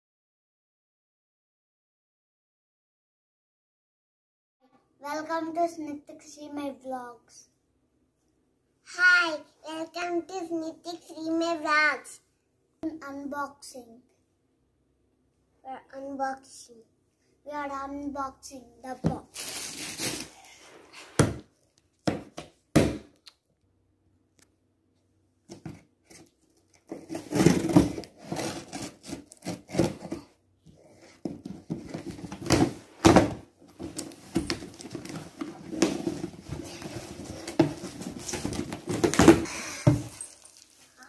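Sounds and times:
cardboard thumps and scraping: 0:26.9 - 0:30.3, 0:31.2 - 0:40.3.

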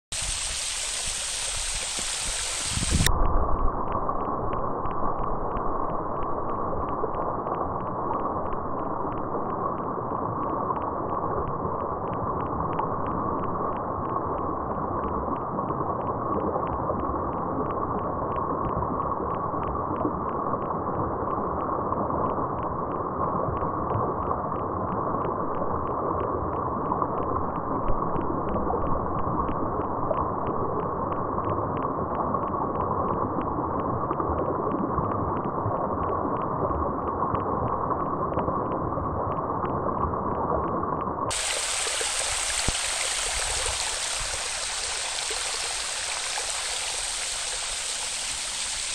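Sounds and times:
stream water rushing over rocks: 0:00.1 - 0:03.1, 0:41.3 - 0:48.9
faint regular tick: 0:03.0 - 0:20.7, 0:21.4 - 0:36.5.

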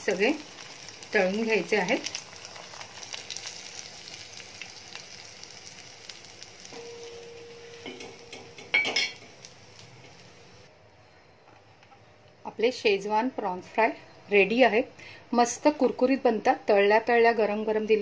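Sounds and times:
prawns sizzling in hot oil: 0:00.0 - 0:10.7.

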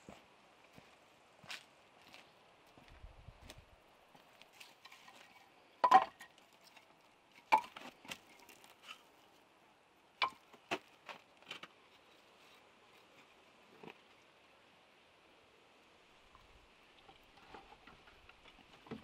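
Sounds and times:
firewood logs knocking together: 0:05.8 - 0:06.8, 0:07.4 - 0:08.9, 0:10.2 - 0:11.8, 0:17.5 - 0:19.0.

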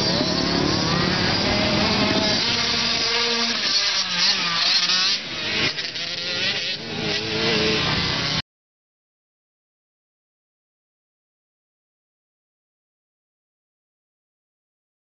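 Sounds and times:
dirt bike engine revving: 0:00.0 - 0:08.4.

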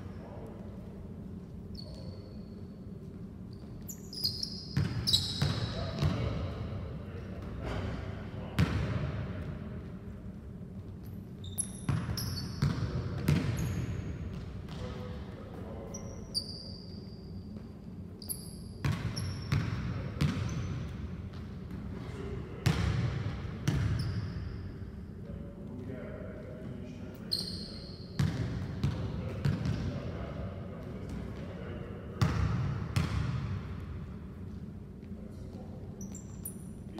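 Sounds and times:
sneaker squeaks: 0:01.3 - 0:06.6, 0:10.8 - 0:21.8, 0:23.6 - 0:24.9, 0:27.0 - 0:30.0, 0:35.8 - 0:36.9
basketball bouncing on hardwood: 0:11.9 - 0:13.6, 0:32.2 - 0:33.4.

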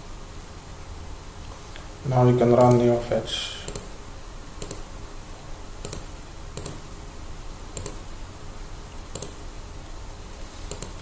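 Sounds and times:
computer mouse clicking: 0:02.6 - 0:02.8, 0:03.7 - 0:03.9, 0:04.6 - 0:04.8, 0:05.8 - 0:06.8, 0:07.8 - 0:08.0, 0:09.1 - 0:09.4, 0:10.7 - 0:11.0.

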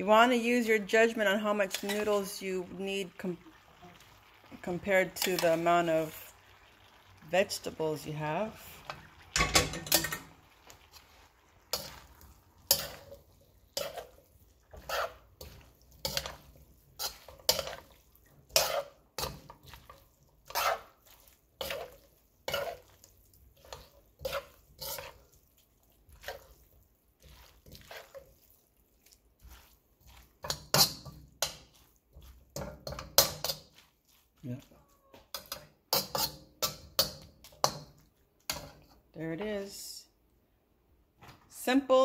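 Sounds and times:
metal spatula scraping wok: 0:00.0 - 0:02.5, 0:04.8 - 0:06.2, 0:08.2 - 0:34.6, 0:35.2 - 0:39.5.

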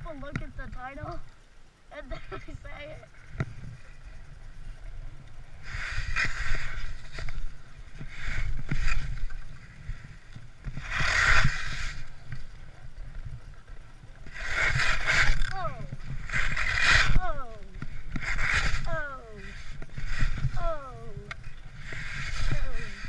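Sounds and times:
wind rumble on microphone: 0:00.0 - 0:23.0
skis scraping on icy snow: 0:05.6 - 0:23.0.

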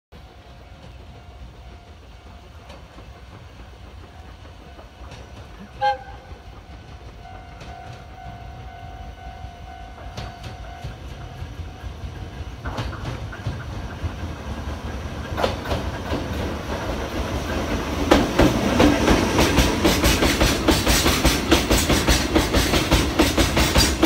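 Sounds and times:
electric locomotive rumbling: 0:00.1 - 0:24.0
locomotive horn blast: 0:05.8 - 0:06.4.

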